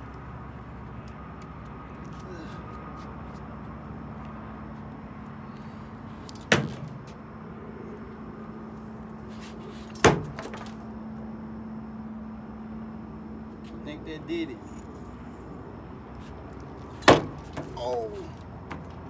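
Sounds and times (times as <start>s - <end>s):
steady low hum: 0.0s - 19.0s
heavy thuds on wooden boards: 17.0s - 17.8s.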